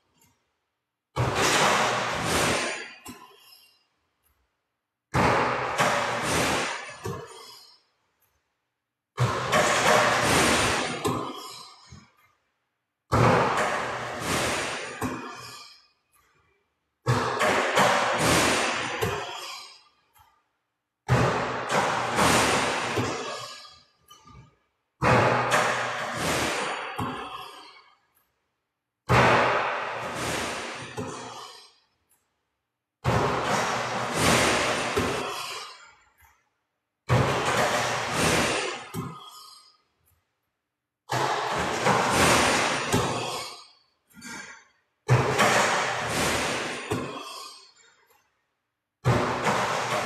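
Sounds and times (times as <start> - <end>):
basketball shooting practice: 1.1 - 4.4, 5.1 - 8.4, 9.1 - 12.3, 13.1 - 20.4, 21.0 - 28.4, 29.0 - 32.3, 33.0 - 36.4, 37.0 - 40.2, 41.1 - 48.2, 49.0 - 50.0
sharp knocks: 41.1 - 43.5.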